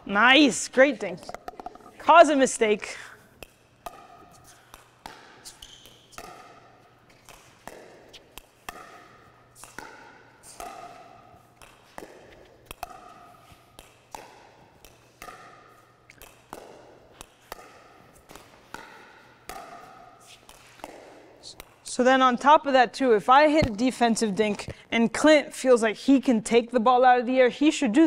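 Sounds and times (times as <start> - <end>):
ball bouncing on court: 0.1 - 25.2
paddles striking plastic ball: 1.2 - 2.0, 3.4 - 21.8.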